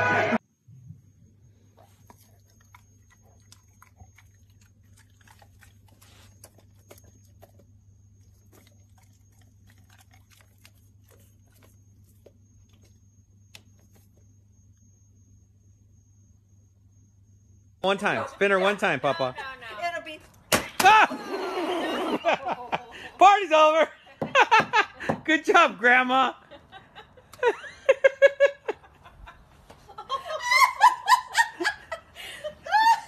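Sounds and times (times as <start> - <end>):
steady low hum: 0.0 - 33.0
dog chewing wet mouth smacks: 1.8 - 14.0.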